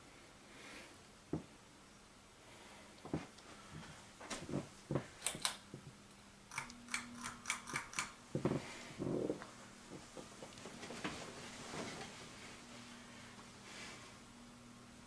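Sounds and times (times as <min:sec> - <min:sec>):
fan motor hum: 0:00.0 - 0:15.0
pull-chain switches clicking: 0:06.5 - 0:08.2.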